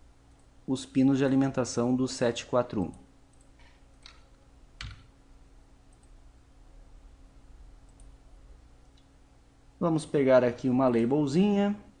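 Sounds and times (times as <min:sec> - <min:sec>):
low steady hum: 0:00.0 - 0:12.0
computer mouse clicks: 0:02.9 - 0:05.1.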